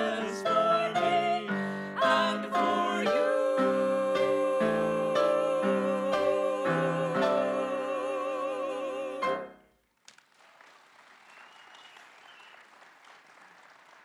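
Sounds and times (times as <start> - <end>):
singers holding a chord: 0.0 - 9.6
audience applause: 10.0 - 14.0.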